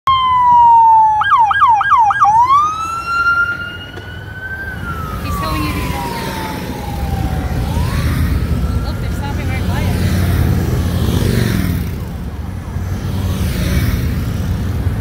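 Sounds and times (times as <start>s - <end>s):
siren whooping yelps: 0.1s - 10.5s
police siren wailing: 0.1s - 11.3s
low traffic rumble: 0.1s - 15.0s.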